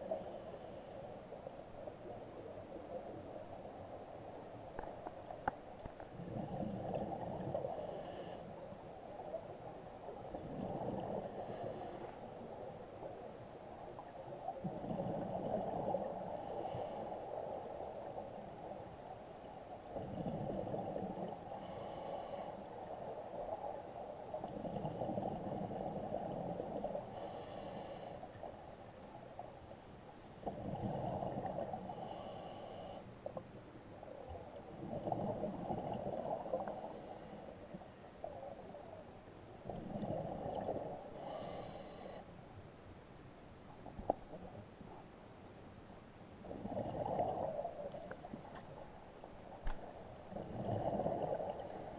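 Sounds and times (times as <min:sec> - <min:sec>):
diver breathing through regulator: 0:07.6 - 0:08.6, 0:11.2 - 0:12.2, 0:21.6 - 0:22.6, 0:27.1 - 0:28.2, 0:31.8 - 0:33.1, 0:36.6 - 0:37.6, 0:41.1 - 0:42.3, 0:50.7 - 0:51.9
gurgling exhaled bubbles: 0:46.4 - 0:47.9, 0:50.3 - 0:51.6.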